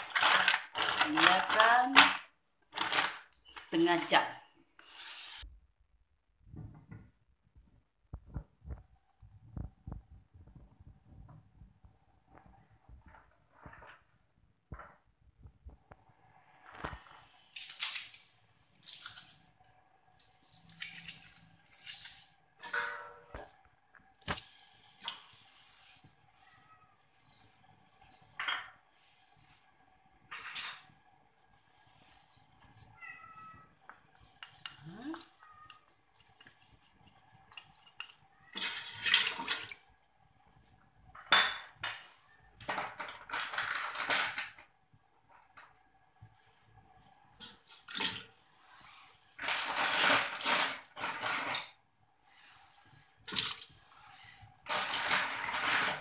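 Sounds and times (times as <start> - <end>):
stalks snapping and tearing: 17.5 - 19.4
water sloshing in pot: 47.4 - 56.0.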